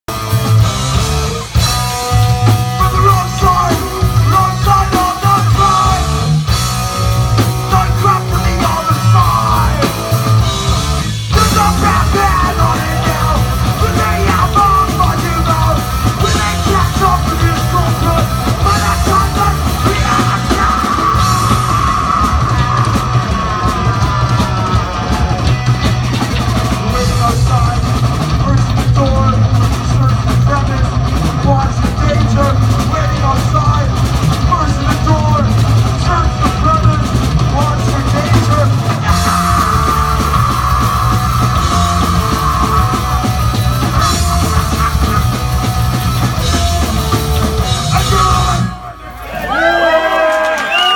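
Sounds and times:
bass guitar: 0.0s - 50.9s
drum kit: 0.0s - 50.9s
electric guitars: 0.1s - 50.9s
person yelling vocals: 2.8s - 6.3s, 7.6s - 10.0s, 11.3s - 25.4s, 47.8s - 50.2s.

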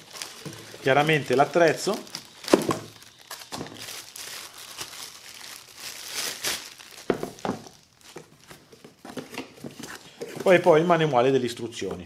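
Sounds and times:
plastic bag crinkling: 0.0s - 8.8s
cardboard box rustling: 7.6s - 10.9s.

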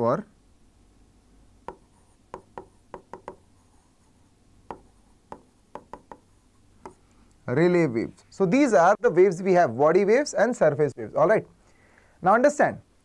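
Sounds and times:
marker pen writing on whiteboard: 1.6s - 7.0s.

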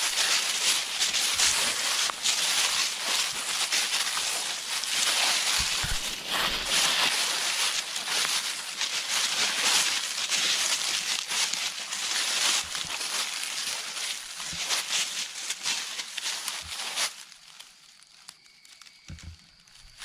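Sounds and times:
footsteps crunching through dry leaves: 0.0s - 20.0s.

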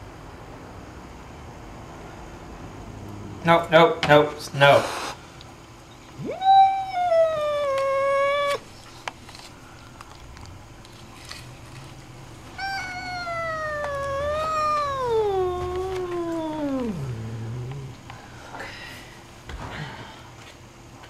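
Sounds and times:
cat yowling: 6.2s - 8.7s, 12.6s - 18.1s.

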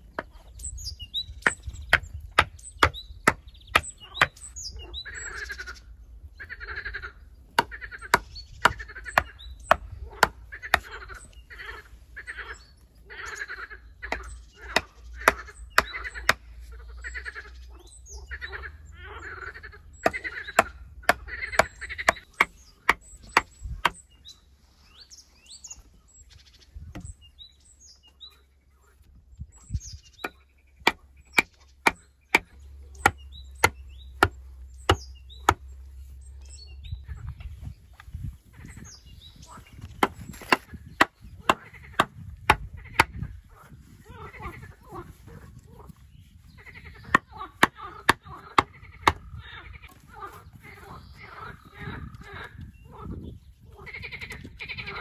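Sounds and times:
hatchet knocking wooden stakes: 1.4s - 4.6s, 7.5s - 11.1s, 14.0s - 16.5s, 20.0s - 24.0s, 30.2s - 35.7s, 39.8s - 43.3s, 47.0s - 49.4s.

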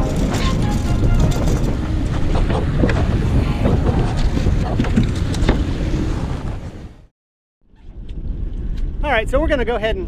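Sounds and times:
wind buffeting microphone: 0.0s - 7.0s, 7.7s - 10.0s
boat wake: 0.0s - 7.1s.

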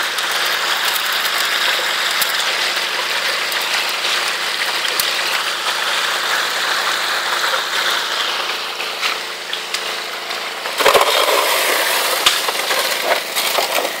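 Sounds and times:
water pump engine running: 0.0s - 14.0s
water rushing down sluice: 0.0s - 14.0s
rocks clattering on metal: 10.8s - 14.0s.

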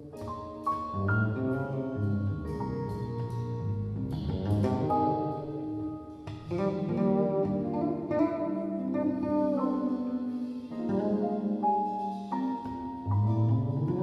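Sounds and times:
drums: 0.0s - 5.4s
piano: 0.0s - 14.0s
electric bass: 0.8s - 10.1s, 13.1s - 14.0s
electric guitar: 2.7s - 14.0s.

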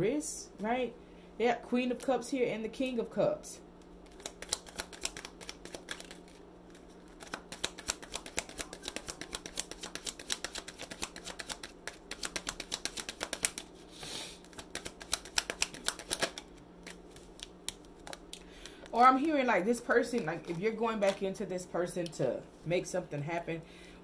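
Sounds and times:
low steady hum: 0.0s - 24.0s
cards being shuffled: 3.8s - 13.8s, 14.4s - 21.3s.

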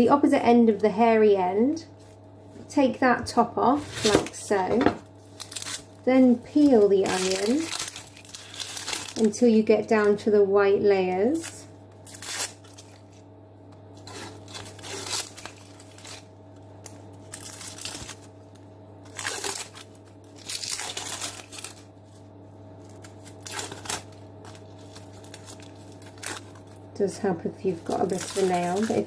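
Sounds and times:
onion skin crackling and tearing: 5.2s - 9.4s, 11.1s - 13.2s, 14.0s - 26.9s, 27.7s - 29.0s.

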